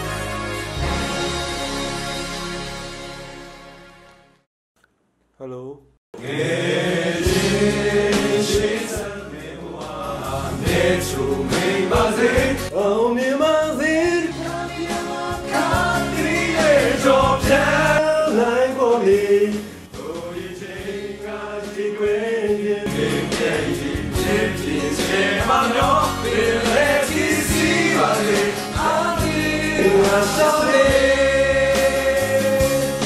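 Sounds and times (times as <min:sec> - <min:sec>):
men singing karaoke: 0:06.2 - 0:33.0
karaoke backing track: 0:06.9 - 0:33.0.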